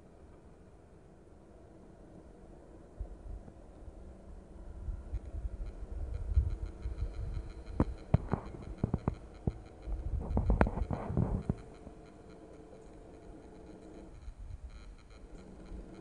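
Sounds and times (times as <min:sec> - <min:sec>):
wind rumble on microphone: 0:02.8 - 0:12.0
sharp clicks and crackles: 0:05.1 - 0:16.0.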